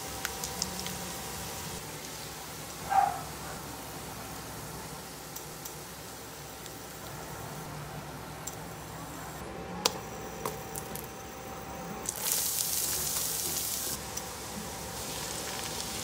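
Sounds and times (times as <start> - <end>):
oil sizzling in frying pan: 0.0 - 7.7, 12.0 - 16.0
butter sizzling: 0.0 - 8.6, 12.0 - 16.0.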